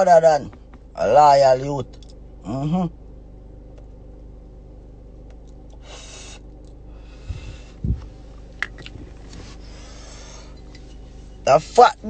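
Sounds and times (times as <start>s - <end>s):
steady low hum: 0.0s - 12.0s
man breathing out smoke: 5.8s - 7.8s.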